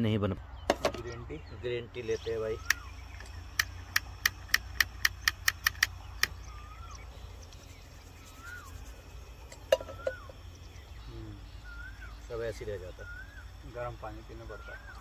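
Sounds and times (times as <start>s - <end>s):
faint whistles rising and falling: 1.1s - 3.5s, 6.2s - 15.0s
sharp clicks: 2.6s - 6.5s.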